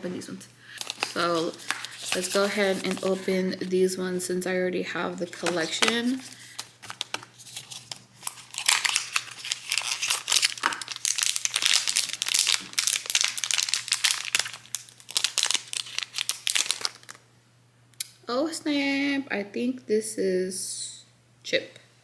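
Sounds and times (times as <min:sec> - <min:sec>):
foil pouch crinkling and tearing: 0:00.7 - 0:03.3, 0:05.3 - 0:17.2.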